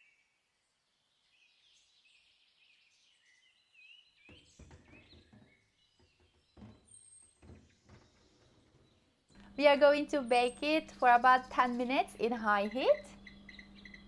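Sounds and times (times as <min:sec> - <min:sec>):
faint bird chirps: 0:08.0 - 0:14.0.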